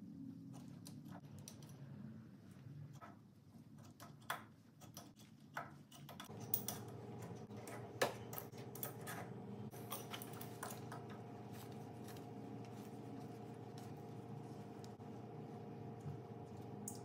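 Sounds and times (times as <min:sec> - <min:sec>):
steady low hum: 0:06.2 - 0:17.0.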